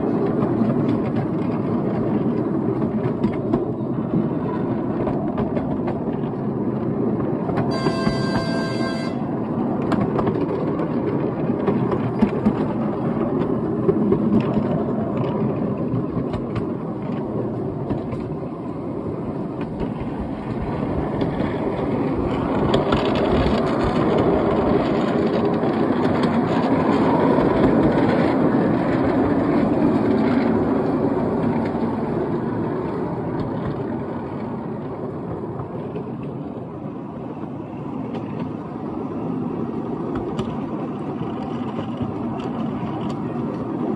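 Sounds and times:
miniature train wheels rumbling: 0.0s - 43.9s.

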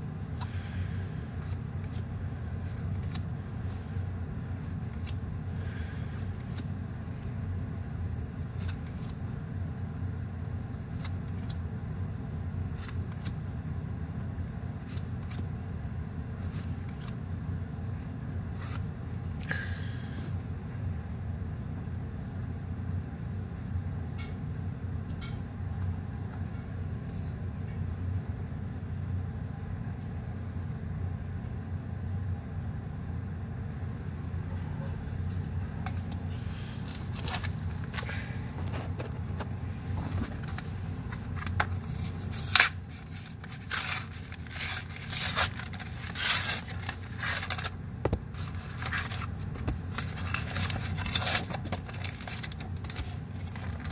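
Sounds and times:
low hum: 0.0s - 53.9s.

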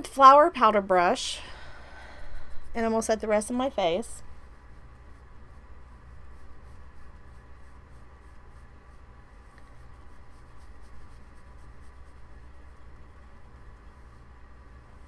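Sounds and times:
steady low hum: 0.0s - 15.0s
powder brush sweeping over skin: 2.2s - 15.0s.

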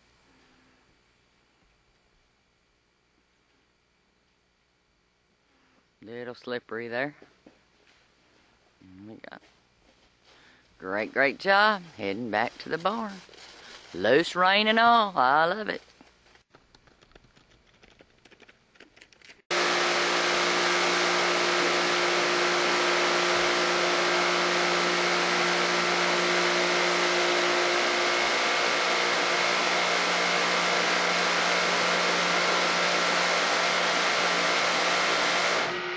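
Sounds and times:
motor hum: 15.8s - 35.9s
pressure washer hissing spray: 19.5s - 35.8s.

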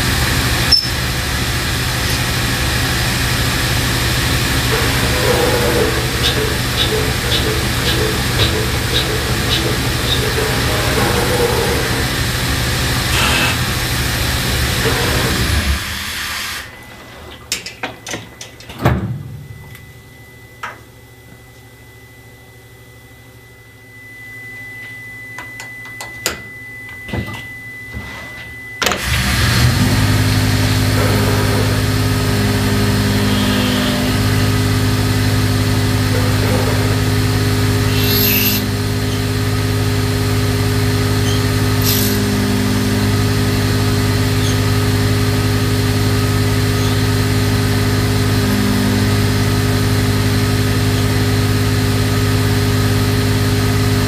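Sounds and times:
lathe spindle turning: 1.9s - 16.1s, 30.2s - 51.7s.

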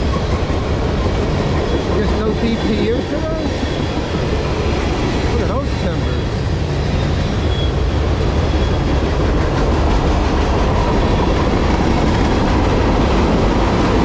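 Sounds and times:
freight train wheels rumbling: 0.0s - 14.0s
faint wheel squeal: 6.0s - 7.9s, 8.5s - 8.9s.

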